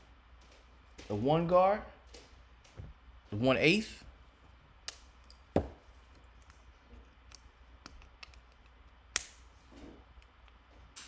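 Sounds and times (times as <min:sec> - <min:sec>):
small clicks and taps: 0:06.1 - 0:09.3.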